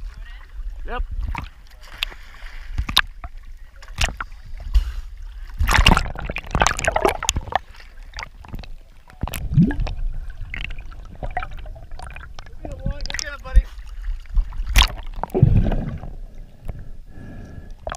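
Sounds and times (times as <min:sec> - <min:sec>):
seawater sloshing and splashing: 0:00.0 - 0:16.4
muffled underwater gurgling: 0:05.4 - 0:13.8.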